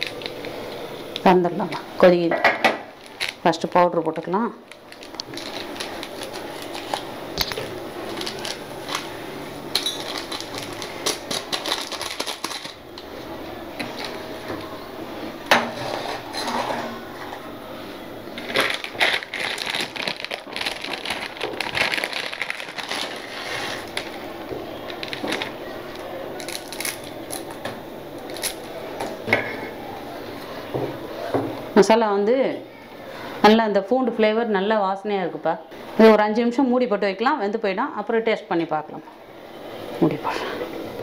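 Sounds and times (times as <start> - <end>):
dry noodles crackling: 0.0 - 1.4, 2.9 - 14.7, 18.0 - 29.2.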